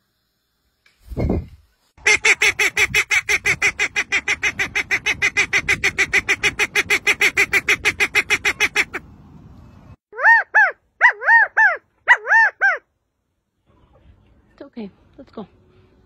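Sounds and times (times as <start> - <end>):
duck quacking rapidly: 2.0 - 9.0.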